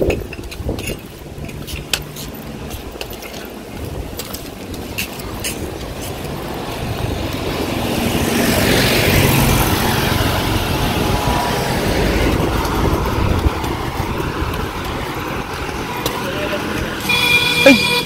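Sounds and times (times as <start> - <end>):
vehicle passing close by: 3.9 - 18.0.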